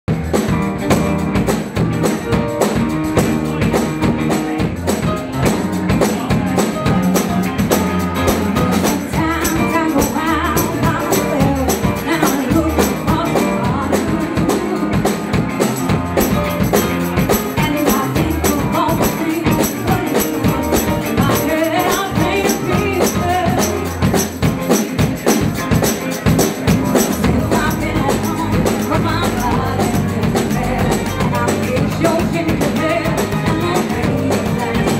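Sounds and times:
live band playing soul music: 0.1 - 34.9
person singing: 7.4 - 34.9.

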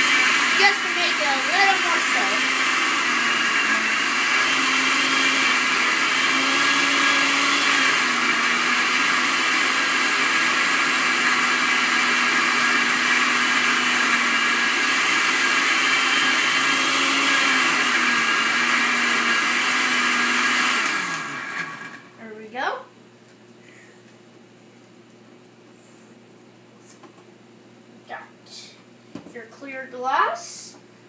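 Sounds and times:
blender motor running: 0.0 - 22.2.

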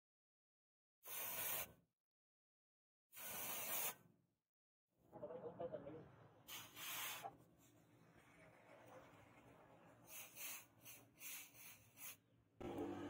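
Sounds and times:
hot blade hissing in water: 10.1 - 12.2.

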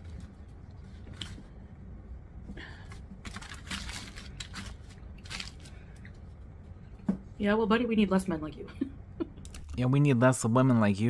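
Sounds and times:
aluminium foil crinkling: 3.2 - 6.1.

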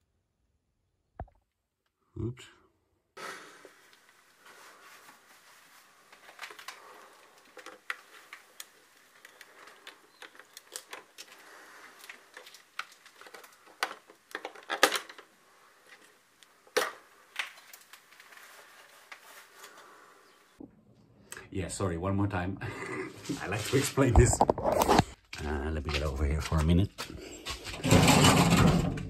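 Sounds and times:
small clicks and knocks: 7.4 - 11.4, 12.0 - 15.3.

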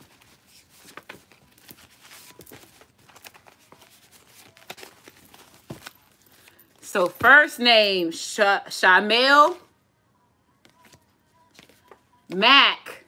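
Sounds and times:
paper slips flicking and rustling: 0.0 - 7.2.

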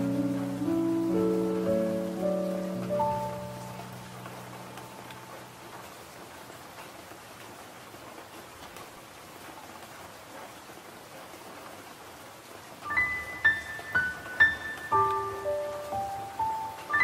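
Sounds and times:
rain falling: 0.0 - 17.0.

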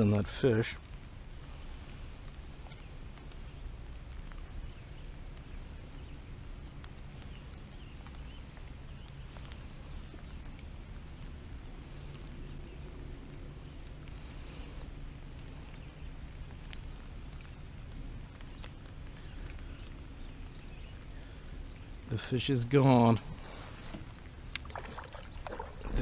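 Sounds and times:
small ticks: 0.8 - 22.3, 23.4 - 26.0.

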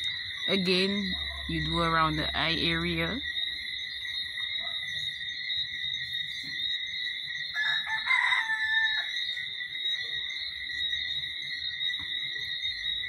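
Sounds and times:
insects droning: 0.0 - 13.0
rooster crowing: 7.5 - 9.4.

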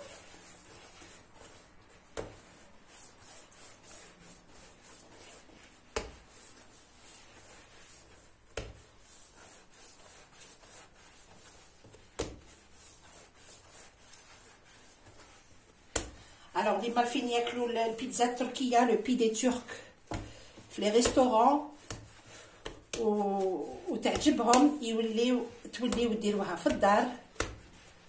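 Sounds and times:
hands kneading dough: 0.0 - 28.0
dough thumping on stone: 5.9 - 6.3, 24.0 - 24.8, 25.9 - 27.8.

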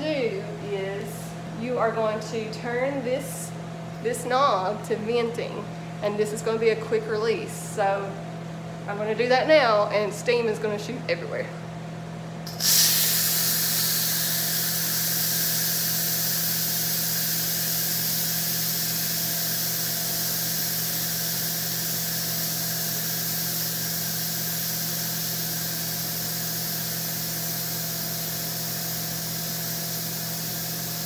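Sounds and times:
pressure cooker steam valve hissing: 12.5 - 31.0.

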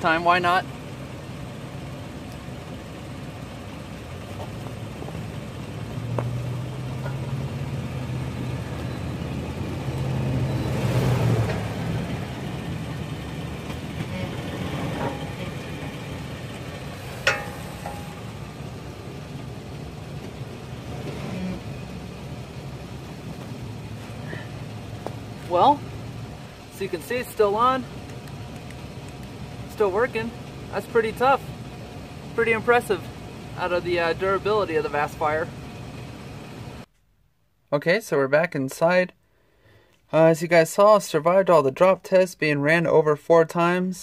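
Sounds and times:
car engine hum: 0.0 - 37.0.

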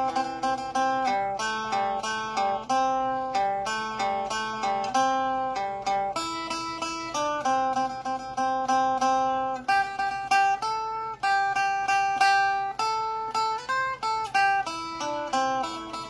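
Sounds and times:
plucked lute melody: 0.0 - 16.0.

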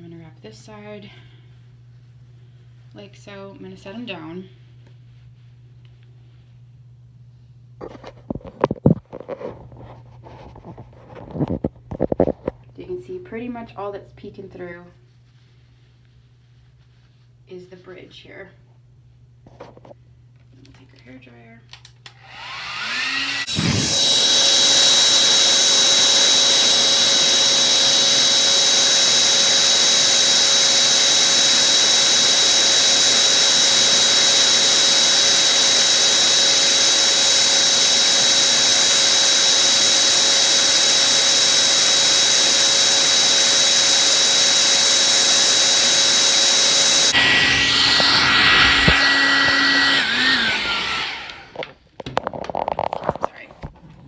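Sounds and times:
hair dryer blowing with whine: 22.0 - 51.8.

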